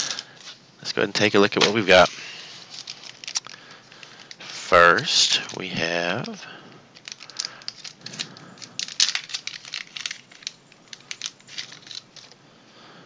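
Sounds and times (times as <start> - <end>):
plastic bag crinkling: 1.6 - 12.4.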